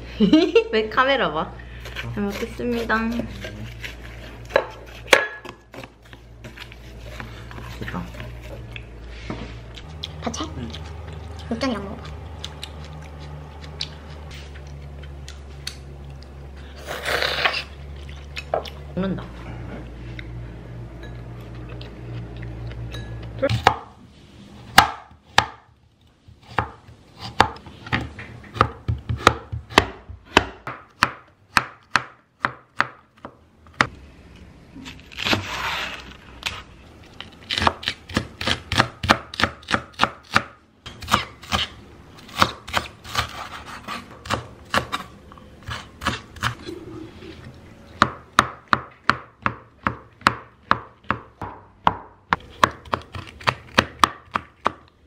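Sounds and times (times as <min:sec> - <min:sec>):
knife chopping on a wooden board: 0:04.5 - 0:05.9, 0:23.5 - 0:23.9, 0:24.7 - 0:25.8, 0:26.4 - 0:33.9, 0:37.5 - 0:41.7, 0:48.0 - 0:54.9
low hum: 0:06.3 - 0:23.5.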